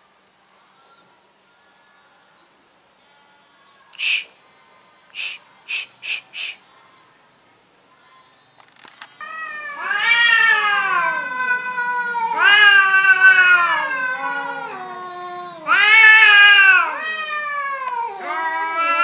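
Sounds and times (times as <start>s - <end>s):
cats yowling: 9.2s - 19.0s.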